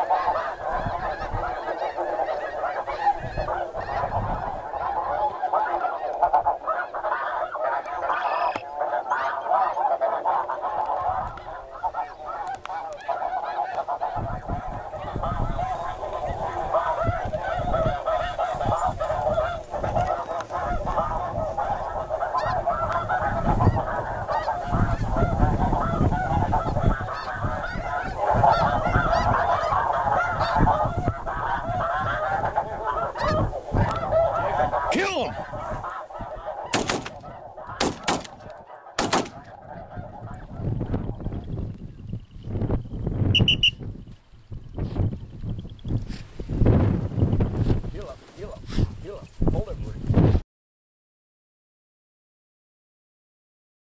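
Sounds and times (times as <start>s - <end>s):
geese honking: 0.0s - 41.6s, 43.4s - 43.8s.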